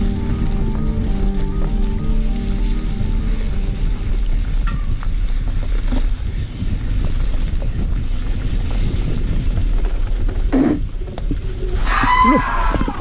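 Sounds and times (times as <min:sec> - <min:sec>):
bike tyre rumble on dirt: 0:00.0 - 0:13.0
wind on microphone: 0:00.0 - 0:13.0
bike rattles and knocks: 0:04.6 - 0:13.0.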